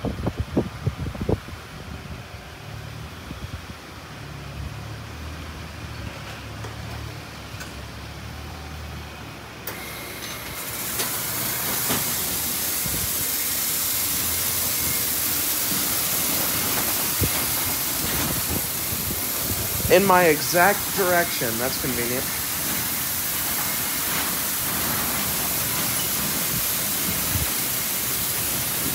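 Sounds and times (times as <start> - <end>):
car wash machine hum: 7.0 - 28.9
water spray hissing: 10.6 - 28.9.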